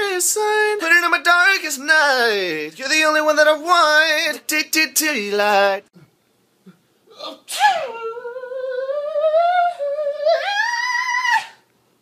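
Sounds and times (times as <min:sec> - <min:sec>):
man sneezing into sung note: 0:07.4 - 0:07.9.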